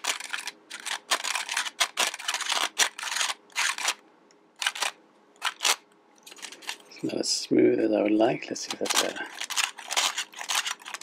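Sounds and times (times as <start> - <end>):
plastic gears clicking and rasping: 8.7 - 11.0.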